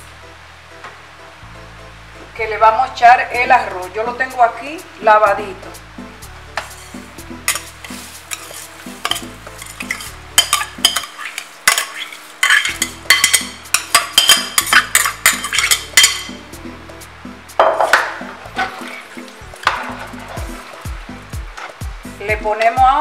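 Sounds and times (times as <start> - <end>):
metal spoon scraping a pot: 6.6 - 16.4, 17.8 - 20.6.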